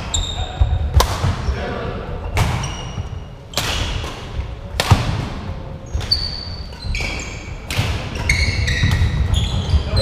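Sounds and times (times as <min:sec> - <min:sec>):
shoes squeaking on floor: 0:00.0 - 0:00.8, 0:02.2 - 0:04.0, 0:05.8 - 0:10.0
racket striking shuttlecock: 0:03.5 - 0:09.2.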